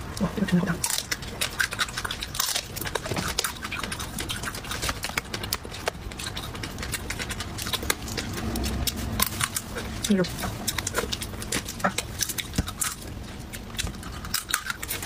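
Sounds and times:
shell crackling as bitten: 0.8 - 9.8.

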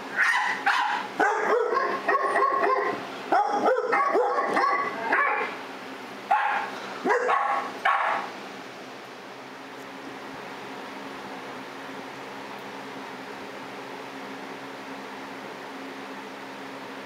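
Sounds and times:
dogs barking: 0.2 - 5.6, 6.3 - 8.4.

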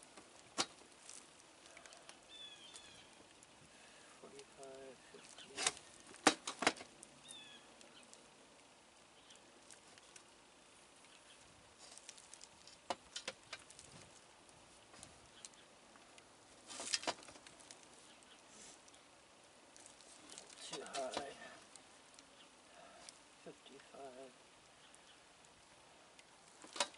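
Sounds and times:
hands handling flexible duct: 3.7 - 6.9, 16.5 - 19.1, 19.7 - 22.2, 26.5 - 26.9.

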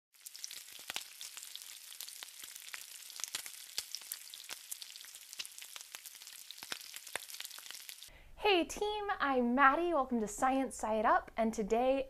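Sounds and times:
eggs sizzling in a pan: 0.1 - 8.1.

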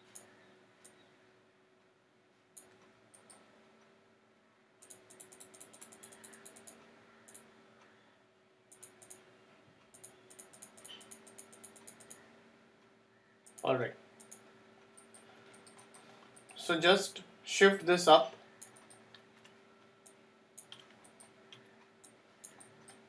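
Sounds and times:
faint steady hum: 0.0 - 23.0
mouse and keyboard clicking: 2.6 - 3.4, 4.8 - 7.5, 8.7 - 9.2, 9.9 - 12.2, 13.4 - 14.4, 15.0 - 16.6, 18.6 - 23.0.

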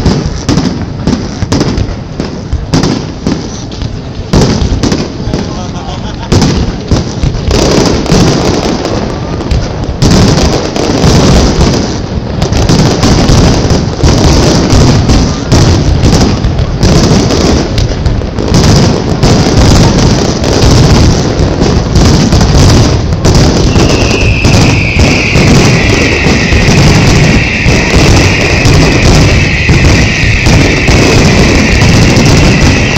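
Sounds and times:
fireworks bursts and crackles: 0.0 - 32.9
high descending whistle: 23.7 - 32.9.

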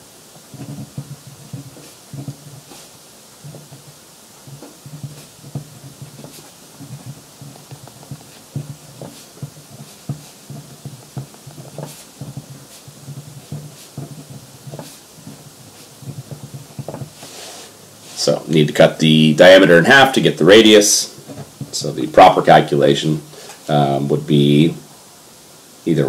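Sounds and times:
marker squeaking on paper: 0.5 - 17.4.

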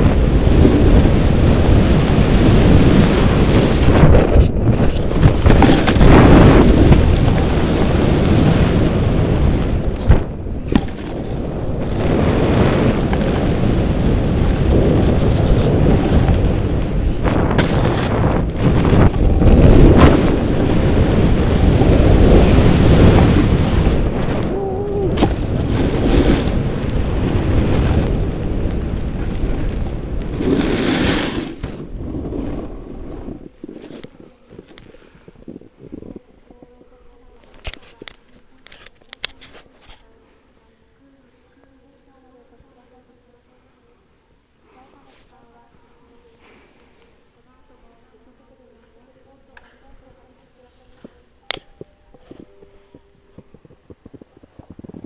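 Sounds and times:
board rumbling over snow: 0.0 - 37.8, 52.4 - 55.0
wind buffeting microphone: 0.0 - 39.2, 51.8 - 55.0
snowboard edges scraping snow: 0.4 - 10.0, 25.1 - 35.6.

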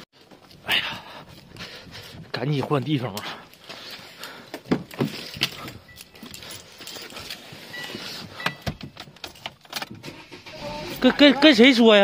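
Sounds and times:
person climbing into car: 4.5 - 11.1.

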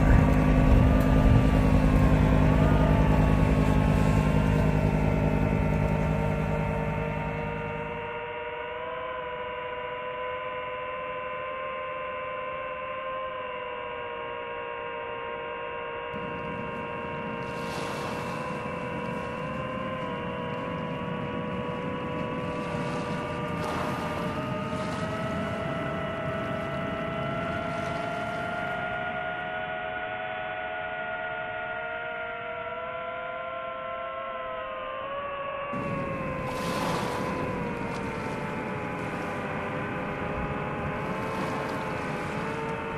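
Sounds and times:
drone propellers whining: 0.0 - 42.9
rushing noise: 16.2 - 25.6, 35.8 - 42.9.

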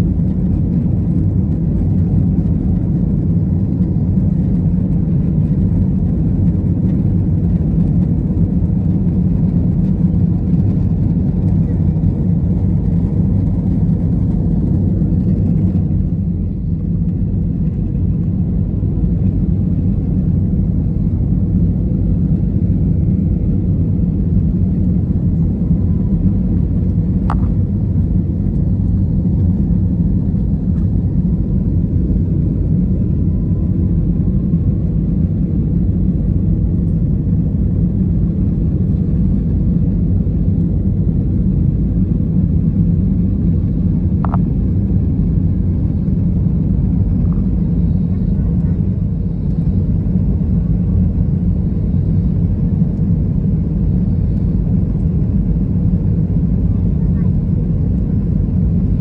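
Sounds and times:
jet engine cabin rumble: 0.0 - 59.0.

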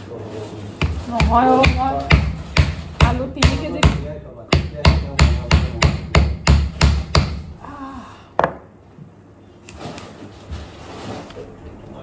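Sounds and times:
knife chopping hard fruit: 0.8 - 7.5.

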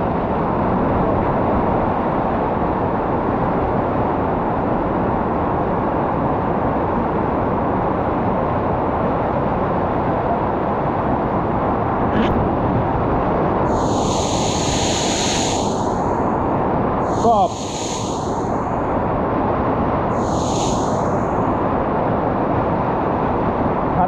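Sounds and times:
waterfall roaring: 17.1 - 18.5.

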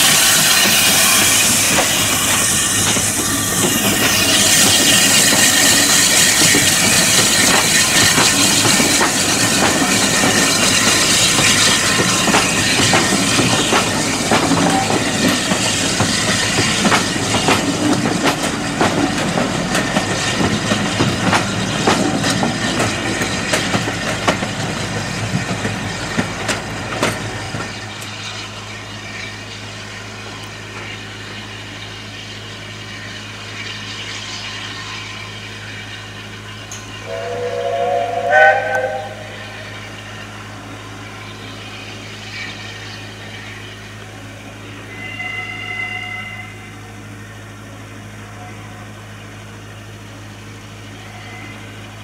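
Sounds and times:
train wheels clicking over rail joints: 0.0 - 40.1.

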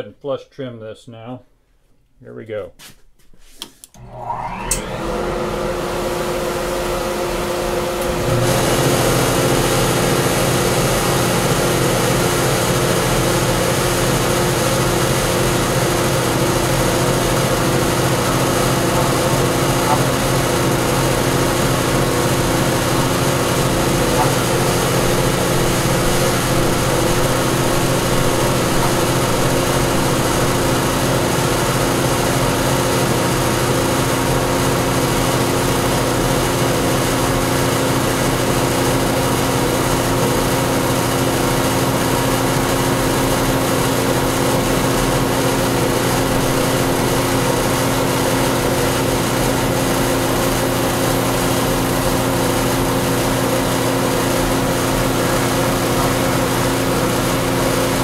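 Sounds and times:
router cutting plywood: 4.0 - 36.8, 45.0 - 50.0.

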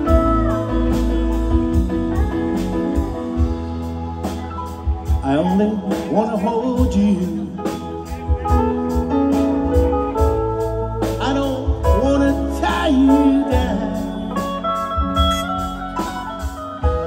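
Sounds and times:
live band playing: 0.0 - 17.0
steady bass line: 0.0 - 17.0.

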